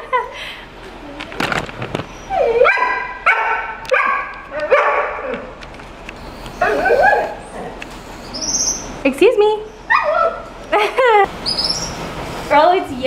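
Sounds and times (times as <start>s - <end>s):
dog yelping: 2.1s - 5.5s, 6.5s - 9.0s, 9.6s - 10.5s.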